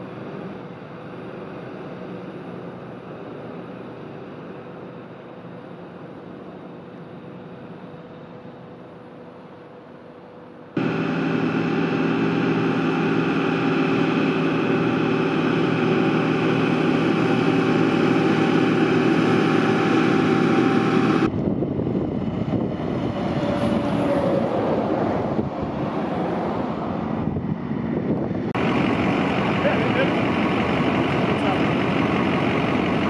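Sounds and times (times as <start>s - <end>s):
truck engine and pump drone: 0.0s - 33.0s
truck rushing down road: 10.7s - 33.0s.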